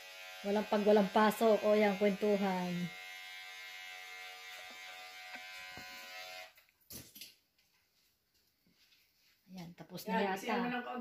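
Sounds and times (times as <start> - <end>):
electric hair clippers buzzing: 0.0 - 6.6.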